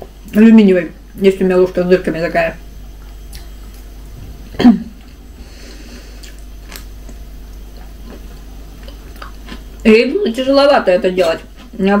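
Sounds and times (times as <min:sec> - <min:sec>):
person chewing: 0:02.9 - 0:03.9, 0:05.0 - 0:09.8, 0:11.2 - 0:11.8.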